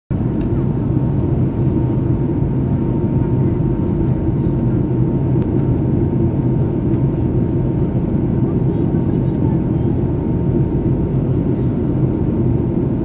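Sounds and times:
airliner cabin engine rumble: 0:00.1 - 0:13.0.

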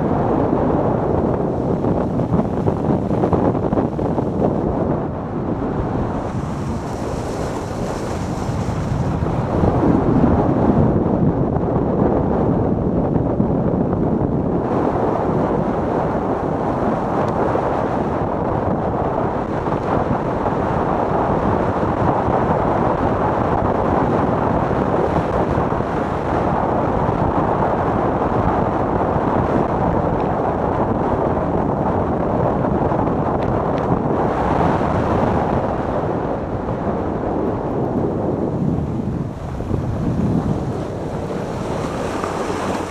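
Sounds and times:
wind buffeting microphone: 0:00.0 - 0:42.9
sled runners scraping snow: 0:06.1 - 0:09.5, 0:39.4 - 0:42.9.

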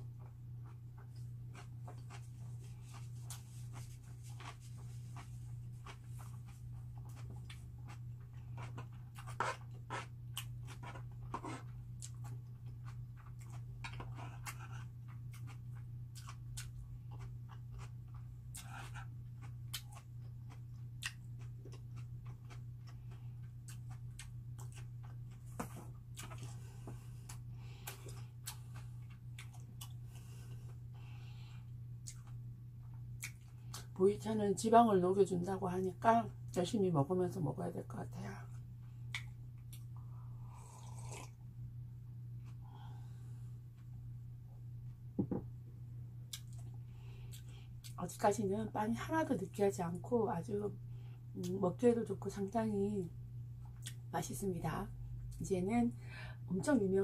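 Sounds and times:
chewing bread: 0:00.0 - 0:34.0, 0:38.4 - 0:41.4, 0:46.3 - 0:48.0, 0:53.6 - 0:54.1
low electrical hum: 0:00.0 - 0:57.0.

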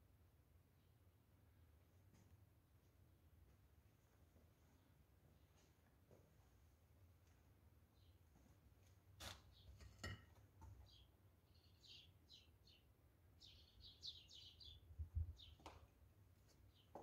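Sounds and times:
small birds chirping: 0:10.7 - 0:15.9.

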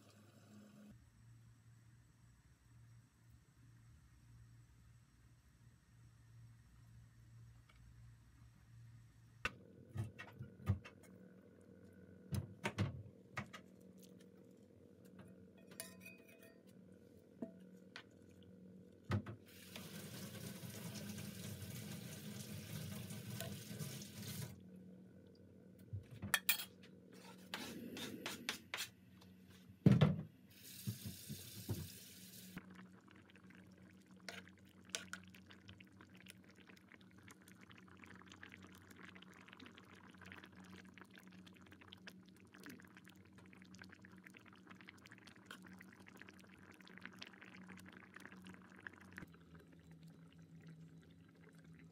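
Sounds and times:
faint steady hum: 0:00.0 - 0:30.9, 0:31.6 - 0:51.9
spoon clinking against pan: 0:15.6 - 0:16.6
watery hiss: 0:30.5 - 0:32.6.

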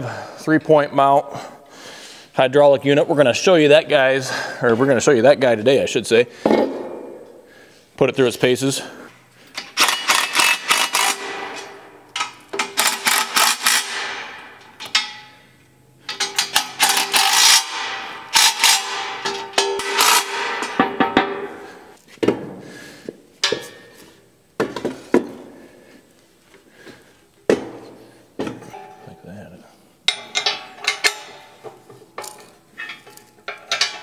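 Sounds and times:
impact driver hammering bolts: 0:09.6 - 0:15.2, 0:16.1 - 0:21.5.

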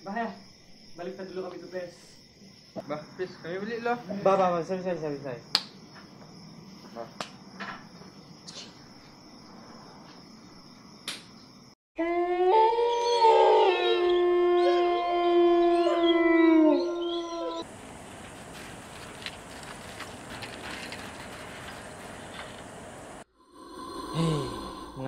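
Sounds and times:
crickets chirping: 0:00.0 - 0:11.8, 0:15.7 - 0:25.0
dogs howling: 0:12.0 - 0:17.7.

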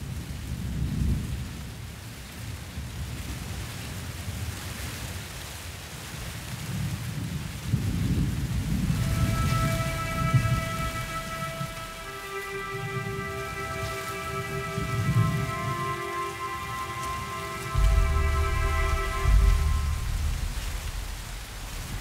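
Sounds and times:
thunder rumbling: 0:07.9 - 0:22.0
steady hiss: 0:08.8 - 0:22.0.

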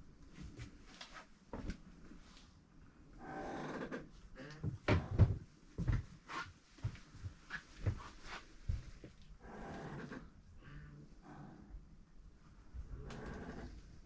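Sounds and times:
creak: 0:03.2 - 0:04.6, 0:09.5 - 0:10.8, 0:13.0 - 0:13.8.

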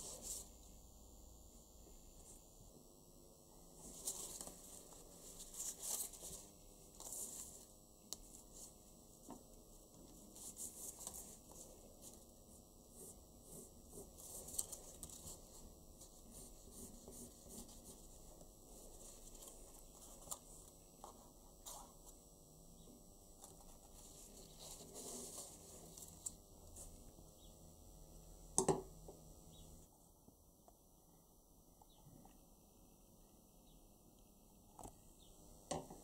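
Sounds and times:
paper rustling and crinkling: 0:03.8 - 0:07.6, 0:14.0 - 0:18.1, 0:23.4 - 0:27.0.

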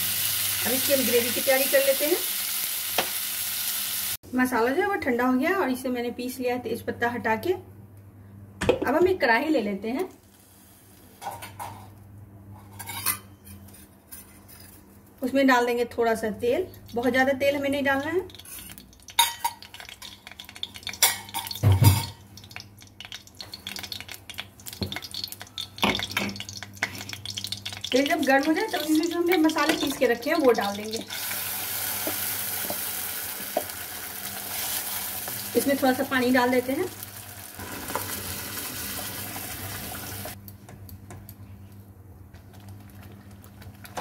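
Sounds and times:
water hissing in hot oil: 0:00.0 - 0:04.2, 0:30.6 - 0:35.7, 0:36.6 - 0:40.4
metal pan and utensils clattering: 0:12.6 - 0:14.8, 0:18.4 - 0:22.2.

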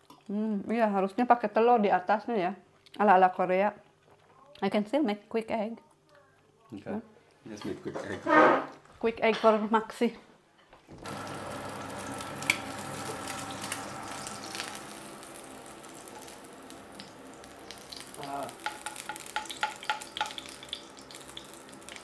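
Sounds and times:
egg sizzling in a pan: 0:11.0 - 0:22.0.

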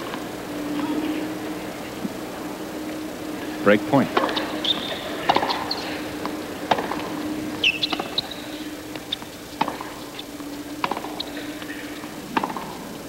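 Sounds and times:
low steady hum: 0:00.0 - 0:13.0
shoes squeaking on court: 0:00.0 - 0:13.0
tennis ball struck by racquets: 0:04.0 - 0:13.0.

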